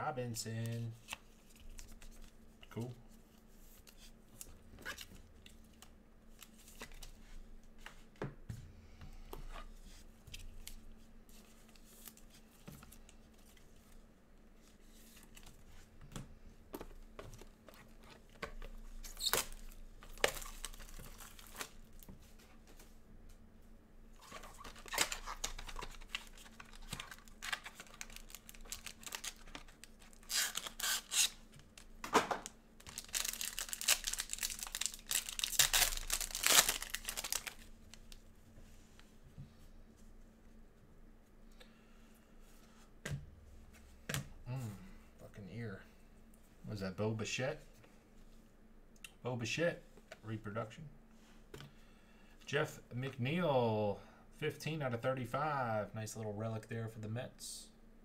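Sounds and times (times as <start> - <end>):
foil wrappers tearing and crinkling: 19.0 - 21.8, 24.2 - 31.9, 32.8 - 38.1.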